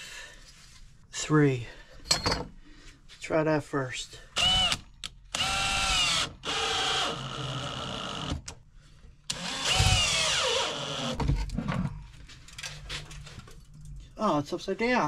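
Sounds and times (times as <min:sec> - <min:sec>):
power drill whining: 0:04.4 - 0:08.4, 0:09.3 - 0:11.2.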